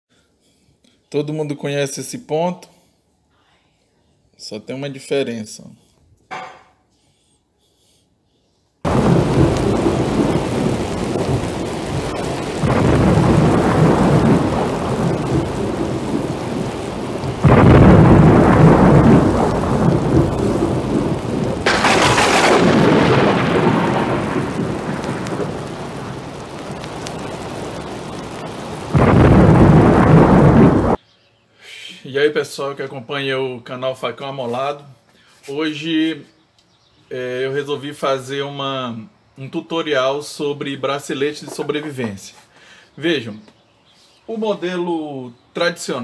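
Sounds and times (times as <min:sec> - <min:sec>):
heavy rain: 0:08.9 - 0:31.0
sharp thunderclap: 0:08.9 - 0:31.0
thunder rumbling: 0:08.9 - 0:31.0.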